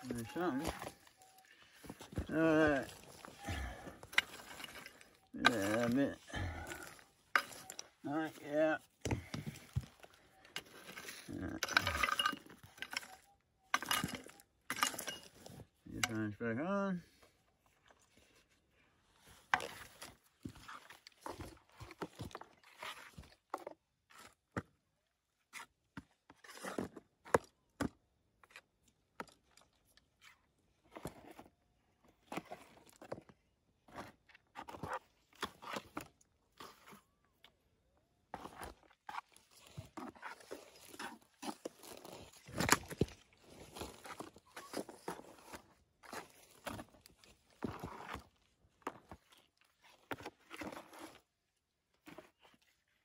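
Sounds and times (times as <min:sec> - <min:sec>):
crunching and scraping on gravel: 0:00.0 - 0:16.4, 0:38.3 - 0:51.4.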